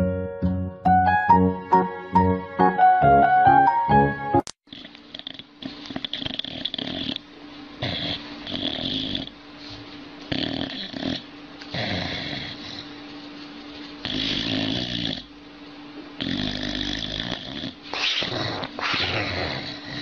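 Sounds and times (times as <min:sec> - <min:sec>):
dog snoring and grumbling: 0:04.7 - 0:09.4, 0:10.3 - 0:12.9, 0:14.0 - 0:15.3, 0:16.2 - 0:20.0.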